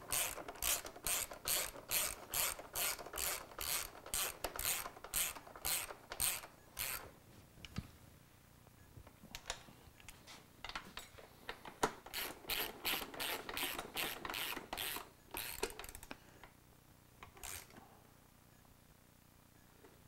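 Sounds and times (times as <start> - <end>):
ratchet wrench clicking: 0.1 - 7.0, 12.1 - 16.1, 17.3 - 17.7.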